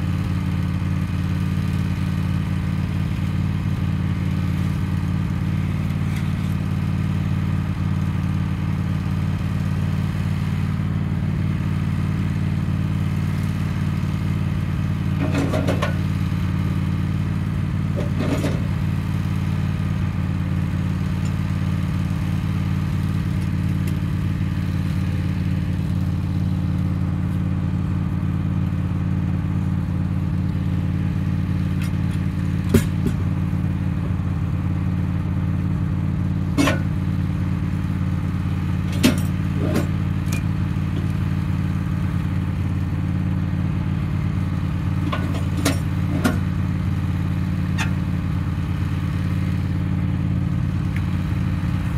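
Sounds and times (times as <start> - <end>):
sawmill engine running: 0.0 - 51.9
log knocking on steel: 32.7 - 33.2.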